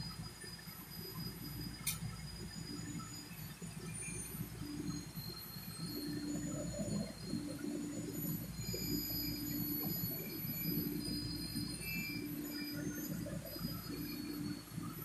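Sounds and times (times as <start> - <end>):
steady machine hum: 0.0 - 15.0.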